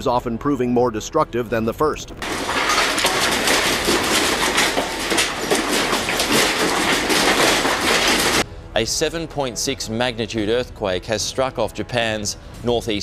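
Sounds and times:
shelves rattling and clattering: 2.2 - 8.4.

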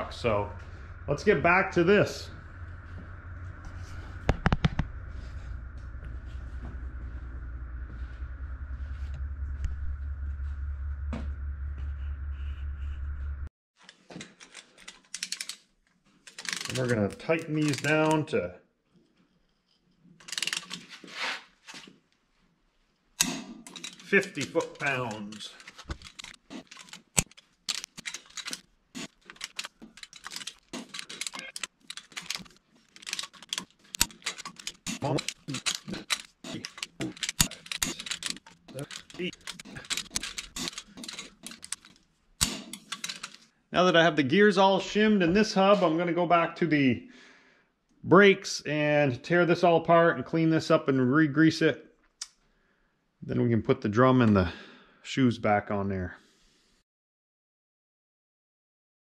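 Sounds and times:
machine hum with high whine: 0.0 - 13.5
hand ratchet clicking: 23.7 - 43.4.

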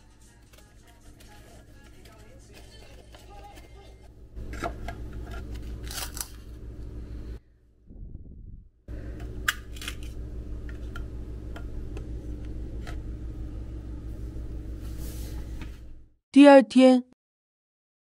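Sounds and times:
steady low hum: 3.5 - 16.2.

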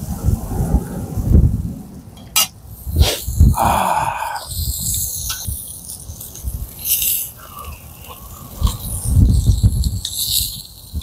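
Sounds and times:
wind rumble on microphone: 0.0 - 11.0
metal tongs clinking on grill: 4.5 - 11.0.

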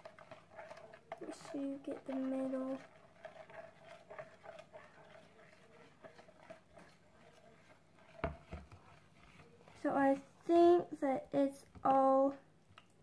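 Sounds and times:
spoon tapping and scraping container: 0.0 - 9.8.

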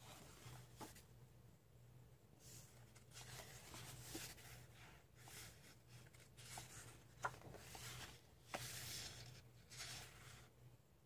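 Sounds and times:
paper pages rustling: 2.5 - 10.5.

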